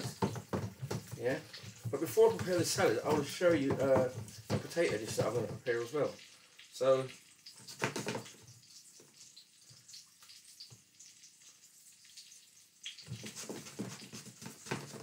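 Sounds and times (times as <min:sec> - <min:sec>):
faint clicks and knocks at sink: 0:00.0 - 0:06.3, 0:07.0 - 0:11.2
water running from tap into sink: 0:00.0 - 0:15.0.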